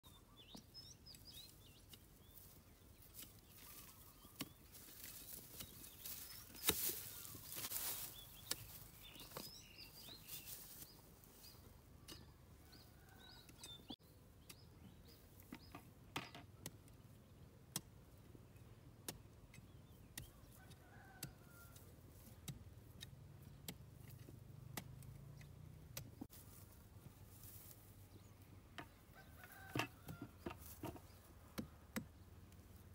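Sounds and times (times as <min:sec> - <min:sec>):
dry grass crackling underfoot: 0:01.2 - 0:11.7, 0:26.2 - 0:31.3.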